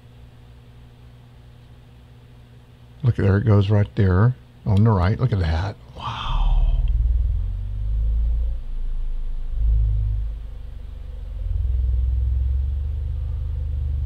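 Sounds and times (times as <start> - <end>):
deep low rumble: 6.0 - 14.0.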